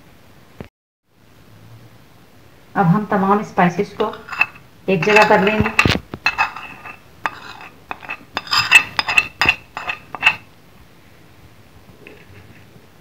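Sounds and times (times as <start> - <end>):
metal spoon scraping ceramic plate: 4.0 - 10.5.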